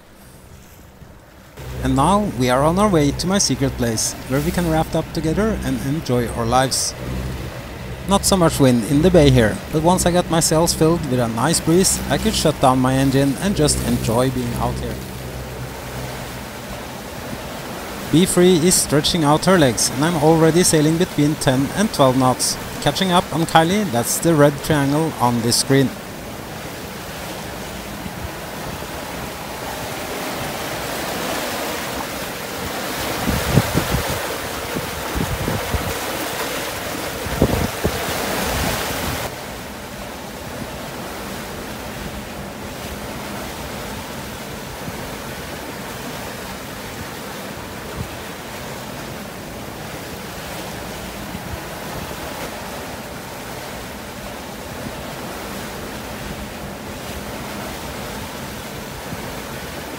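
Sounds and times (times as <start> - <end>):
water rushing along hull: 0.0 - 59.9
wind buffeting microphone: 32.6 - 39.3.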